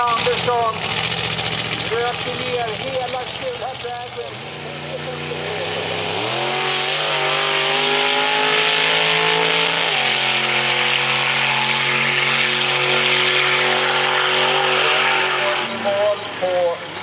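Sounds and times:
race car engine at high revs: 0:00.0 - 0:17.0.

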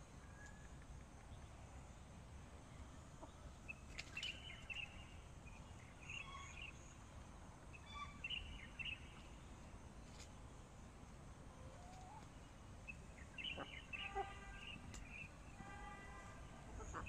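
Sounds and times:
bird chirping: 0:03.2 - 0:07.1, 0:07.7 - 0:09.5, 0:12.8 - 0:15.6.

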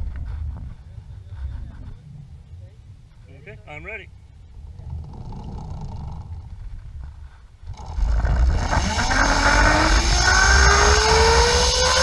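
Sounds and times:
wind rushing on microphone: 0:00.0 - 0:03.7
pulleys whining rising pitch: 0:08.0 - 0:12.0.

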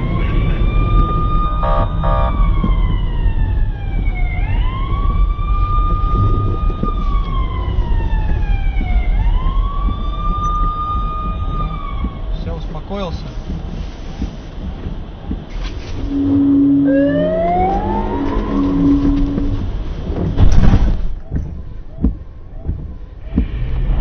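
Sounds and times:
siren wailing: 0:00.0 - 0:12.4, 0:16.0 - 0:20.5
low rumble: 0:00.0 - 0:24.0.

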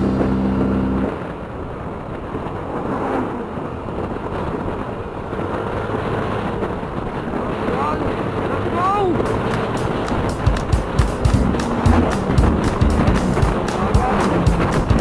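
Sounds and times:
music track: 0:00.0 - 0:01.1, 0:09.2 - 0:15.0
scooter engine: 0:00.0 - 0:01.3, 0:08.4 - 0:15.0
wind rushing on microphone: 0:00.0 - 0:15.0.

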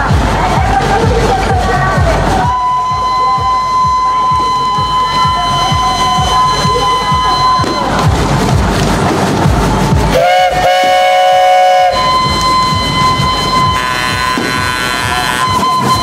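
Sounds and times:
steam engine exhaust puffing: 0:00.0 - 0:16.0
steam whistle chord: 0:02.5 - 0:08.0, 0:10.1 - 0:16.0.

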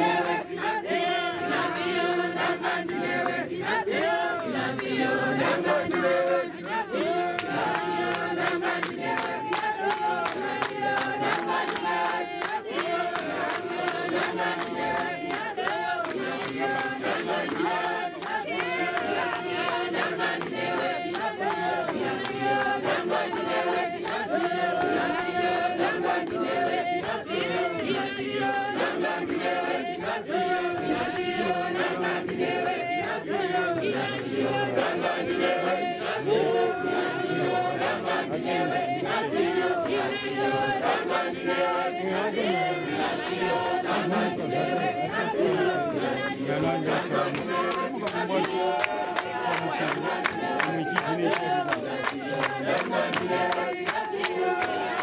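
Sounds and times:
congregation singing a hymn: 0:00.0 - 0:55.0.

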